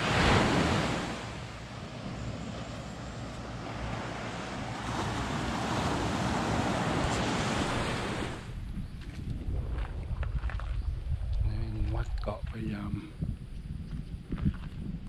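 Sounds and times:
sea surf washing ashore: 0.0 - 8.6
wind rumble on microphone: 0.0 - 15.0.

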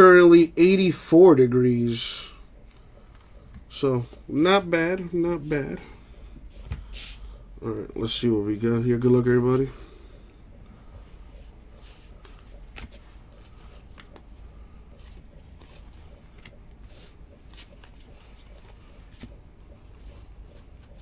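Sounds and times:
low steady hum: 0.0 - 21.0
cards snapping and rustling: 12.2 - 14.3.

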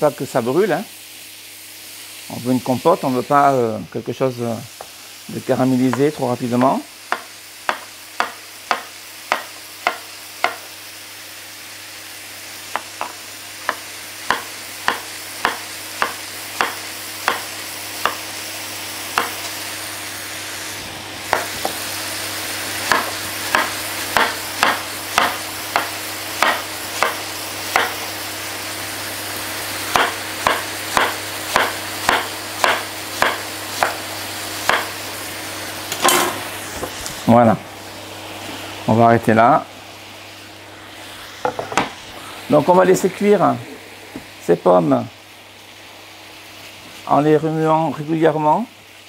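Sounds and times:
food sizzling in frying pan: 0.0 - 49.0
knife chopping on plastic board: 6.6 - 10.6, 12.8 - 18.2, 19.2 - 19.4, 22.9 - 28.0, 29.9 - 34.0, 34.7 - 34.9.

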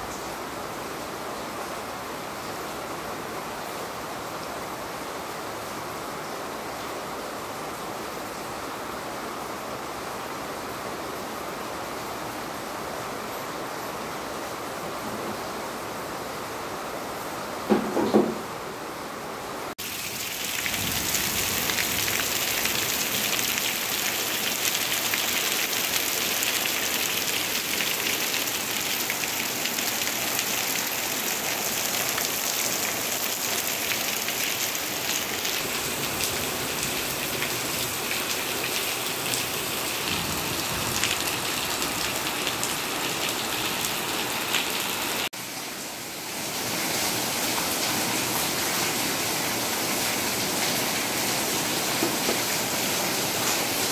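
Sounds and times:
heavy rain falling: 0.0 - 53.9.

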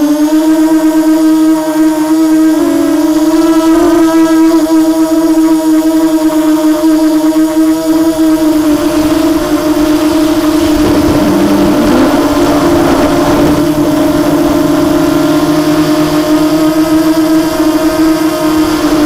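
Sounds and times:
quadcopter motors whining: 0.0 - 19.0
wind noise: 8.1 - 19.0.

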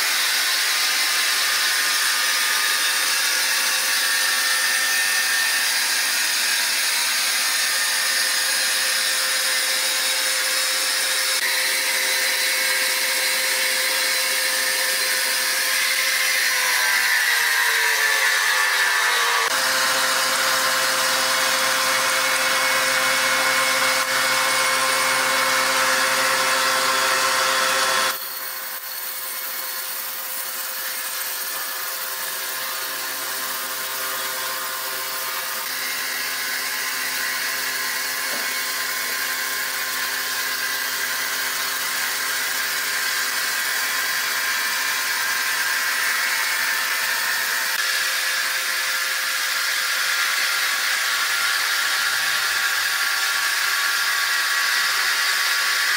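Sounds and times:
band saw cutting wood: 0.0 - 55.9
machine hum: 19.4 - 28.2.

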